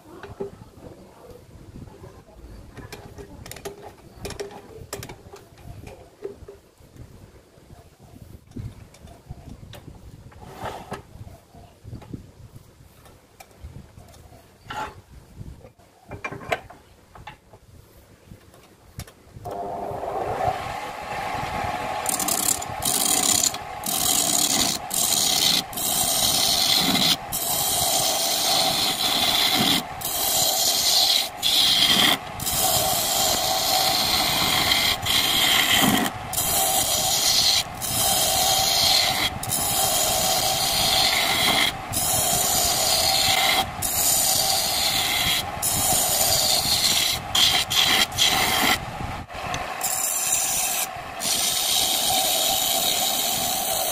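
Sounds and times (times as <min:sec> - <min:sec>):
chisel scraping spinning wood: 0:19.5 - 0:48.8, 0:49.4 - 0:53.9
lathe motor hum: 0:19.5 - 0:48.8.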